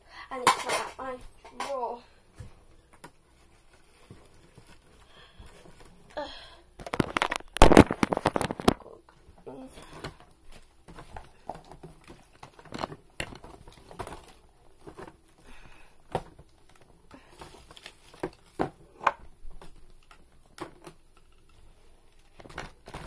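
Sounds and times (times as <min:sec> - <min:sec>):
small objects clicking and tapping: 0:06.8 - 0:09.0.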